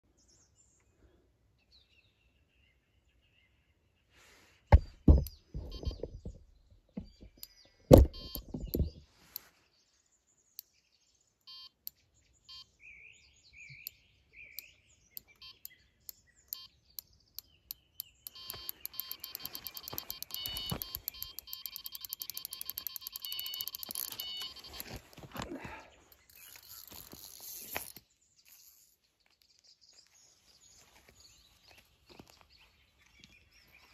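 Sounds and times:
heavy thumps: 0:04.7 - 0:06.4, 0:07.0 - 0:09.0
bite alarm beeps: 0:05.1 - 0:06.4, 0:07.9 - 0:09.0, 0:11.5 - 0:11.8, 0:12.5 - 0:12.7, 0:15.2 - 0:15.7, 0:16.5 - 0:16.7, 0:18.3 - 0:25.0.

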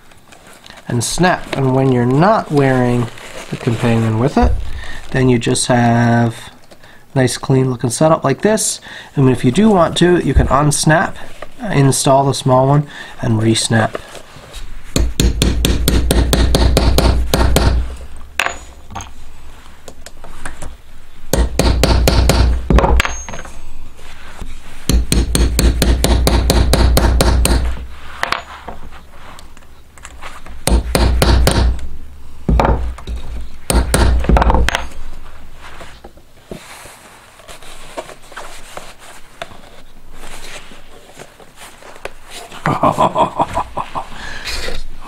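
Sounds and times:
hammer tapping leather punch: 0:15.0 - 0:17.8, 0:21.3 - 0:23.2, 0:24.9 - 0:27.7, 0:30.6 - 0:31.8, 0:33.7 - 0:34.8.

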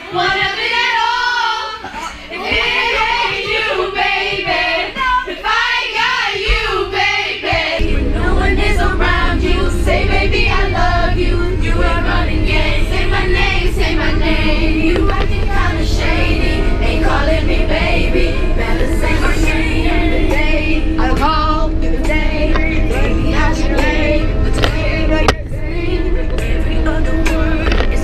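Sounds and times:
girls singing together: 0:00.0 - 0:28.0
low rumble: 0:07.8 - 0:28.0.

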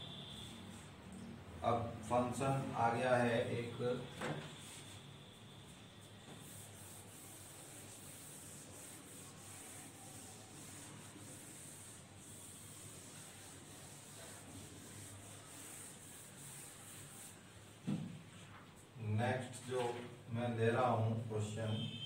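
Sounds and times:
duster rubbing on whiteboard: 0:04.5 - 0:05.1, 0:05.7 - 0:18.9.

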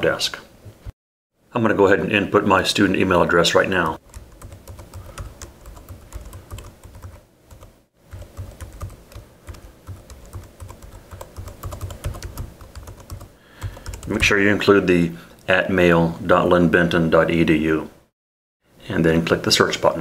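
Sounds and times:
typing on computer keyboard: 0:04.0 - 0:14.3.

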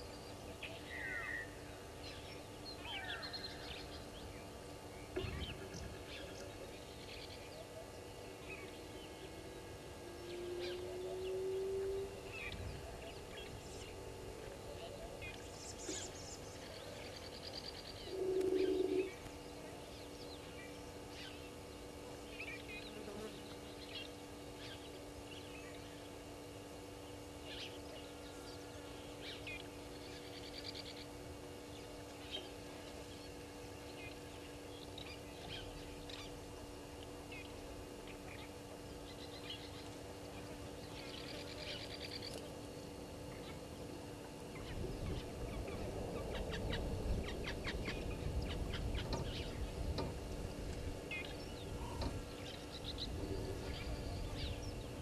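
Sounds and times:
lower bird call: 0:00.0 - 0:04.4, 0:05.0 - 0:21.5
birds chirping: 0:00.0 - 0:55.0.

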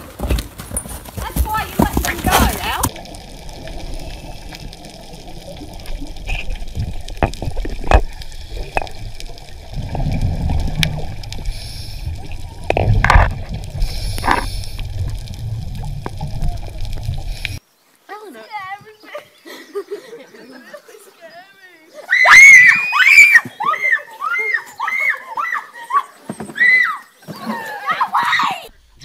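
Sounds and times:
underwater bubbles gurgling: 0:02.8 - 0:17.6.

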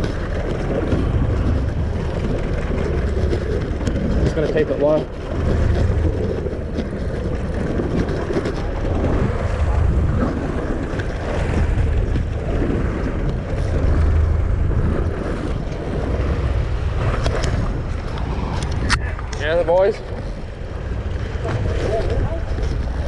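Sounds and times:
sea noise: 0:00.0 - 0:23.0
wind rumbling on microphone: 0:00.0 - 0:23.0
faint clicks: 0:17.2 - 0:20.3.

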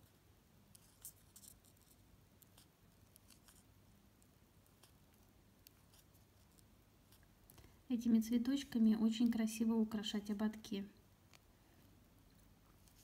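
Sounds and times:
needle and thread through ribbon: 0:00.0 - 0:07.3, 0:12.7 - 0:13.0.

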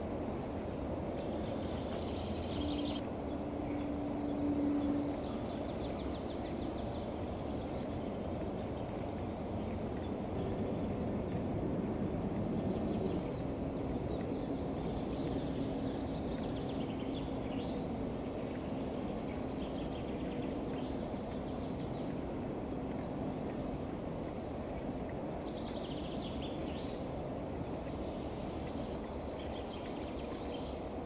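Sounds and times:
faint steady hum: 0:00.0 - 0:31.0
low outdoor rumble: 0:00.0 - 0:31.0
faint bird chirps: 0:01.2 - 0:10.6.

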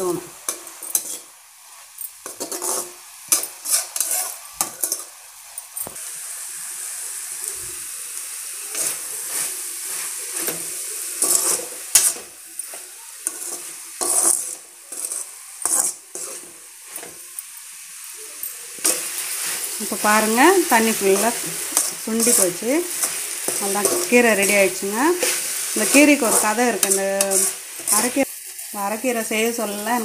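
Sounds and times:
frying sizzle: 0:00.0 - 0:30.0
spatula scraping metal pan: 0:00.5 - 0:01.3, 0:02.2 - 0:05.1, 0:08.7 - 0:12.3, 0:13.2 - 0:17.2, 0:18.8 - 0:28.3.

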